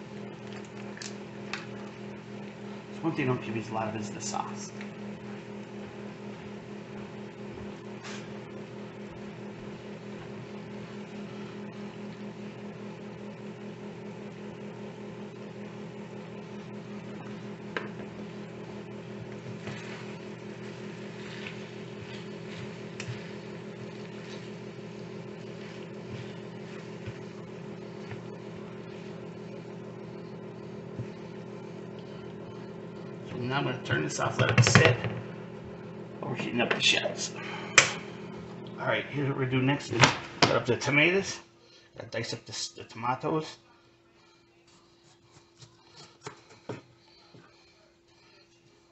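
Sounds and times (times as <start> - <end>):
spatula stirring meat: 19.0 - 29.9.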